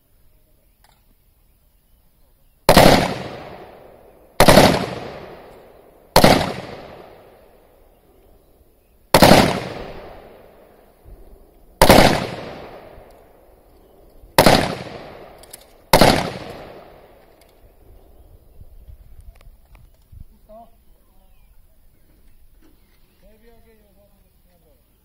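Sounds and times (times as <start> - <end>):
rifle shots with echo: 2.7 - 8.0, 9.1 - 17.7.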